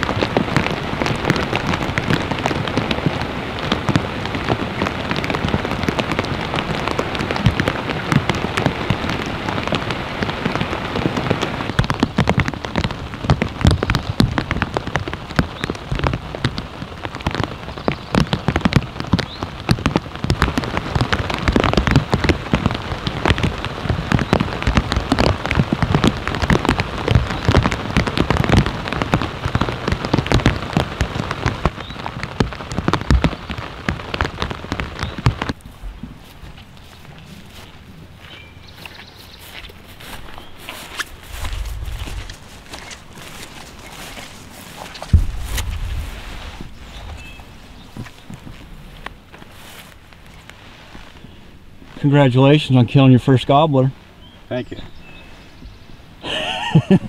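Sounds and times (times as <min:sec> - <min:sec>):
rain patter: 0:00.0 - 0:57.0.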